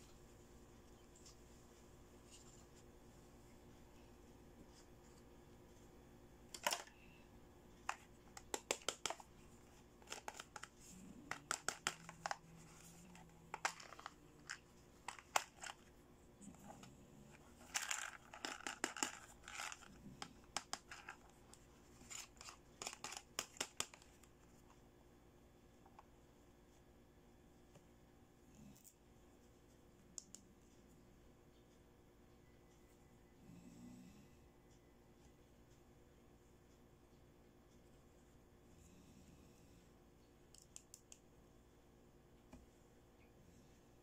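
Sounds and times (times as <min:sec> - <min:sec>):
plastic toys clicking and tapping: 0:06.5 - 0:07.0, 0:07.8 - 0:09.3, 0:10.0 - 0:15.9, 0:17.4 - 0:21.4, 0:22.0 - 0:24.3.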